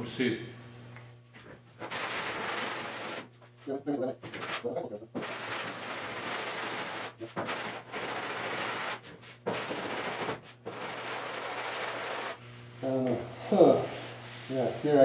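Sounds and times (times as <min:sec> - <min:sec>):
steady low hum: 0:00.0 - 0:15.0
sandpaper rubbing on metal: 0:01.8 - 0:03.3, 0:04.4 - 0:12.4.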